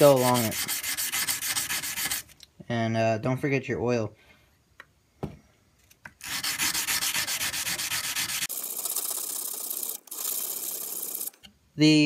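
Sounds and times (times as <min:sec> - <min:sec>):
sandpaper rubbing on steel blade: 0:00.0 - 0:02.3, 0:06.2 - 0:08.6.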